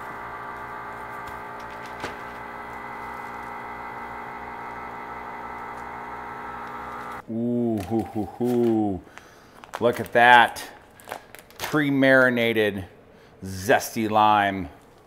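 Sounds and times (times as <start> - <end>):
electrical hum: 0.0 - 9.4.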